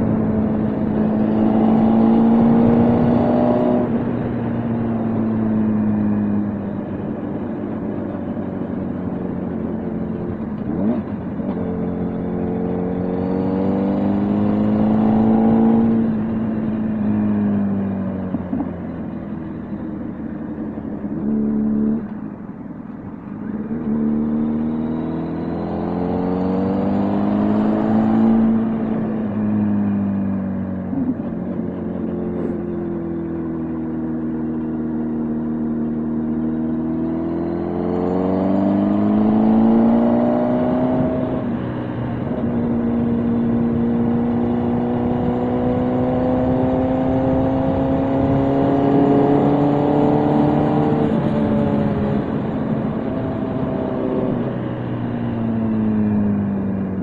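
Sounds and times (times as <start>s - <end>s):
motorcycle engine revving: 0.0s - 57.0s
wind noise: 37.9s - 57.0s.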